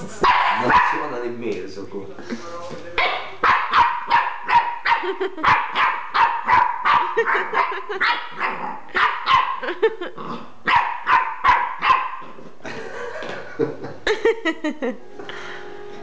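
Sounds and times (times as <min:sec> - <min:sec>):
puppy barking: 0:00.2 - 0:01.1, 0:03.0 - 0:09.7, 0:10.6 - 0:12.4.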